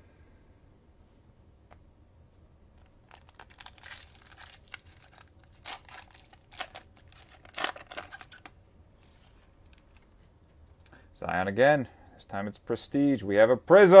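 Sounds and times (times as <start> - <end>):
foil wrapper crinkling: 2.8 - 8.5.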